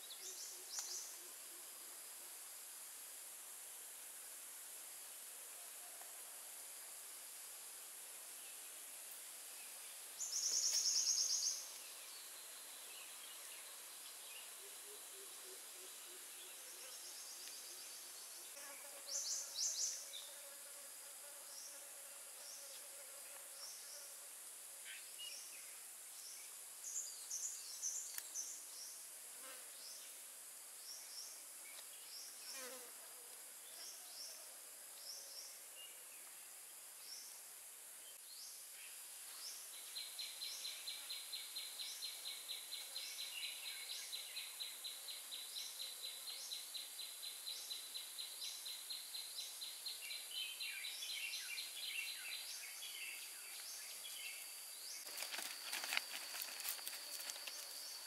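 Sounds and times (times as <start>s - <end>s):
insects buzzing and trilling: 0.0s - 58.0s
steady high hiss: 0.0s - 58.0s.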